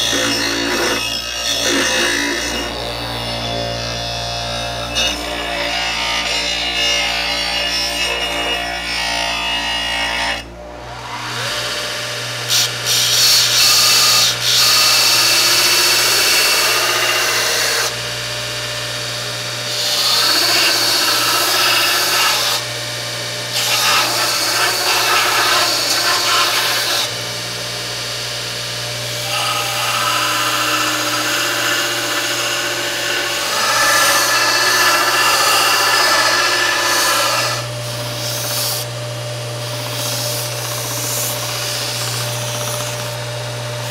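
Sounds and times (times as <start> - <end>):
belt sander motor hum: 14.4 - 43.9.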